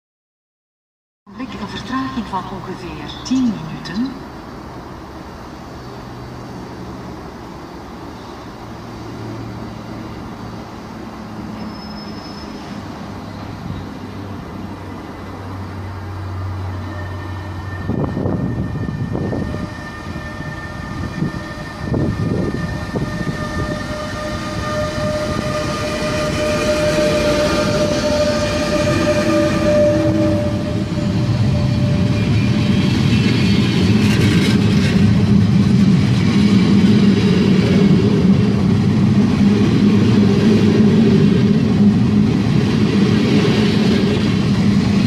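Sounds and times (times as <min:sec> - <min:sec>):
locomotive high whine: 0:01.3 - 0:45.0
wheel-on-rail rumble and clatter: 0:31.9 - 0:45.0.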